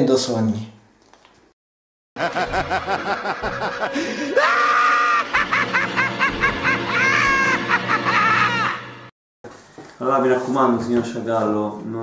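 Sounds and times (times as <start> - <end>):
high shrieking laugh: 2.2 - 9.0
people laughing loudly: 2.2 - 9.0.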